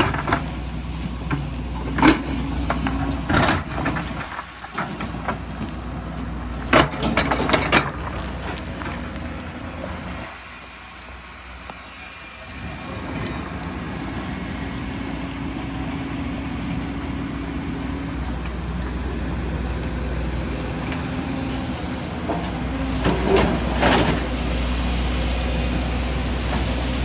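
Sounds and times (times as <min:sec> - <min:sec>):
excavator diesel engine running: 0:00.0 - 0:27.0
bucket clanking and scraping on rock: 0:01.7 - 0:05.4, 0:06.7 - 0:09.0.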